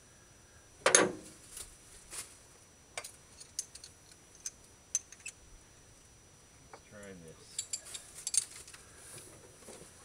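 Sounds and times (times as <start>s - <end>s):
light metal clicks of tools: 3.0s - 5.4s, 7.5s - 8.8s.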